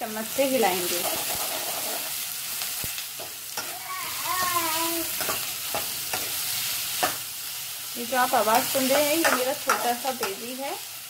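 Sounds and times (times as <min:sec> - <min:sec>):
onions sizzling in oil: 0:00.0 - 0:11.0
metal spoon scraping pan: 0:03.2 - 0:03.8, 0:05.1 - 0:07.2
baby cooing: 0:03.7 - 0:05.2.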